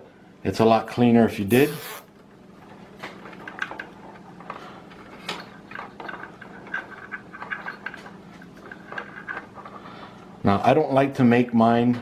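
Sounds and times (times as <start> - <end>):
faint steady hum: 0.0 - 12.0
cables clicking and rubbing: 2.6 - 10.3.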